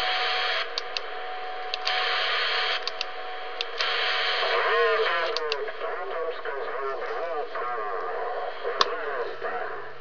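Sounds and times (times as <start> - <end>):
radio static hiss: 0.0 - 10.0
switch clicks: 0.8 - 1.1, 2.8 - 3.9
faint voice under static: 4.5 - 9.9.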